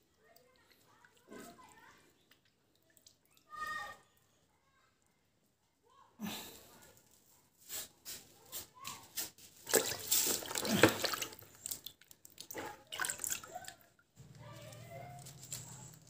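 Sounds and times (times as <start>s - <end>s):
water dripping: 0.0s - 4.3s, 9.6s - 14.5s
hand splashing in water basin: 9.6s - 13.8s.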